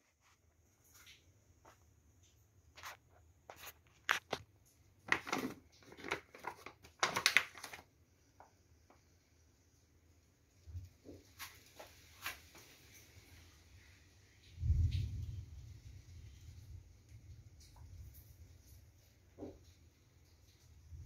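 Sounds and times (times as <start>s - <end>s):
plastic bags crinkling: 5.0s - 7.9s.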